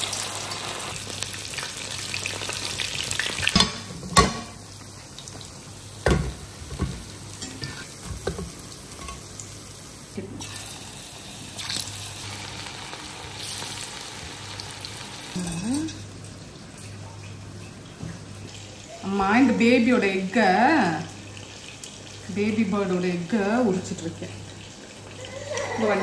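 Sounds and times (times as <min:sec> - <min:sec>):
food sizzling in hot oil: 0:00.0 - 0:16.2.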